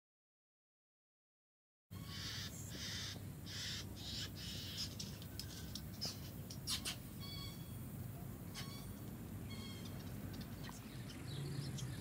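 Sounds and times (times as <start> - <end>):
bird giving harsh rasping calls: 2.0 - 4.9
sharp bird clicks: 2.8 - 7.0, 8.6 - 12.0.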